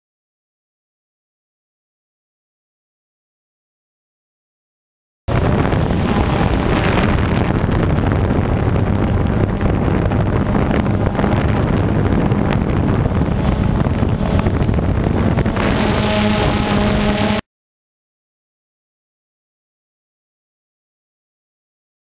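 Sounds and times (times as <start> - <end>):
drone motor hum: 5.3 - 17.4
wind buffeting microphone: 5.3 - 17.4.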